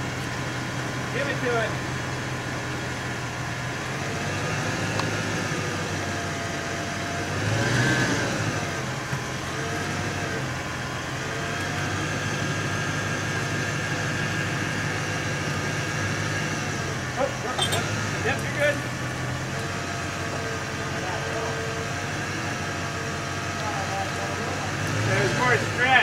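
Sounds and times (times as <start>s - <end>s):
steady engine hum: 0.0s - 26.0s.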